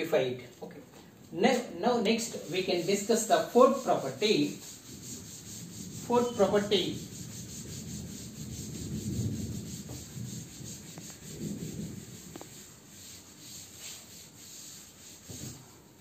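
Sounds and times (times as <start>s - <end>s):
cloth wiping blackboard: 1.5s - 16.0s.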